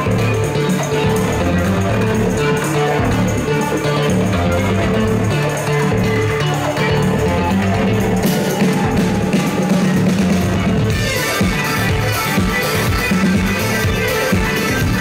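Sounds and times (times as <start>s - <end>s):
live band music through loudspeakers: 0.0s - 15.0s
steady drum beat: 0.0s - 15.0s.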